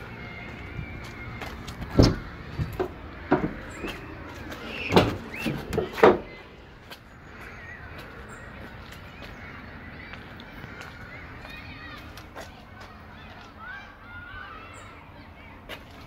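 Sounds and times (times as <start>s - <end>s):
van doors clicking and clunking: 1.0s - 6.5s.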